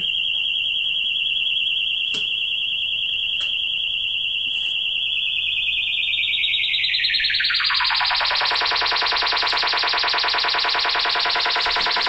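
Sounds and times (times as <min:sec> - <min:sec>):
warbling test tone: 0:07.4 - 0:12.0.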